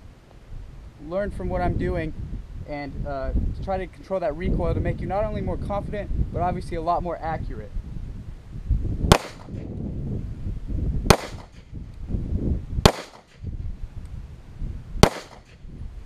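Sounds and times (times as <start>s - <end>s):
handgun shots with echo: 9.1s - 9.6s, 11.1s - 11.6s, 12.8s - 13.4s, 15.0s - 15.6s.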